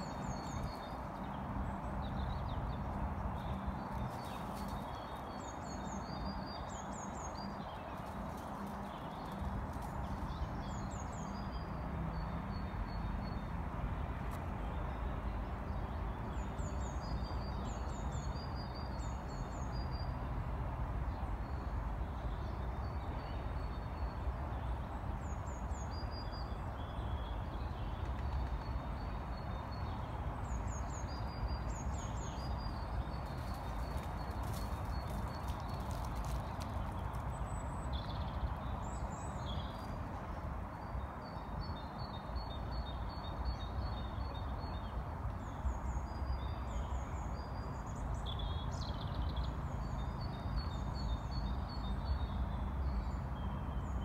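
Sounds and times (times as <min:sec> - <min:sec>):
songbird singing: 0:00.0 - 0:20.3, 0:21.1 - 0:54.0.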